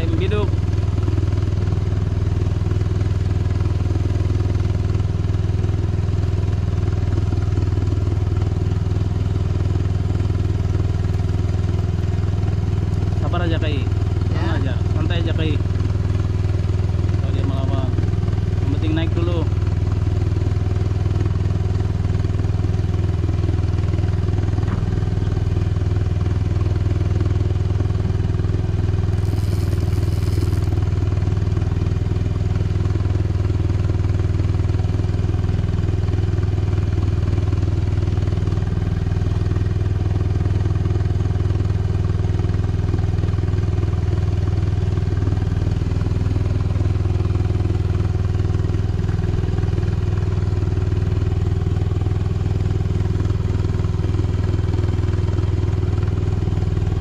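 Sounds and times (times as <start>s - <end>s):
boat motor droning: 29.1s - 31.3s.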